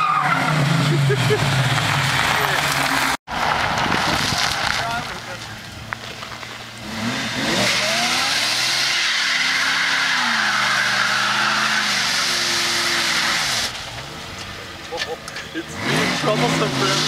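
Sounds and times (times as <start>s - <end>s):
car engine revving: 0.0s - 17.0s
tyres squealing: 7.6s - 17.0s.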